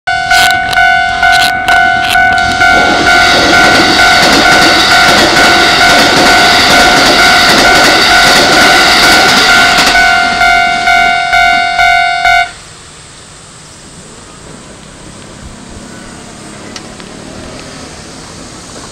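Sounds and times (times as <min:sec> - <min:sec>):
level-crossing warning bell: 0:00.1 - 0:12.7
train wheels rumbling on rails: 0:00.2 - 0:18.9.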